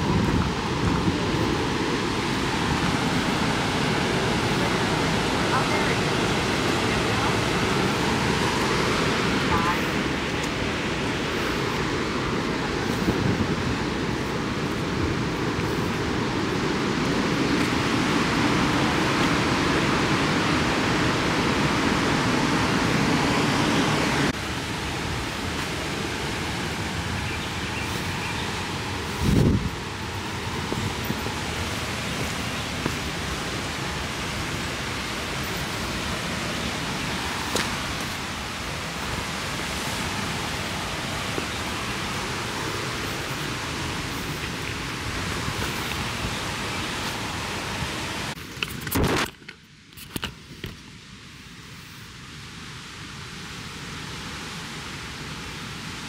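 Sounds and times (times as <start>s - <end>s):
steady outdoor rushing noise: 0.0s - 56.0s.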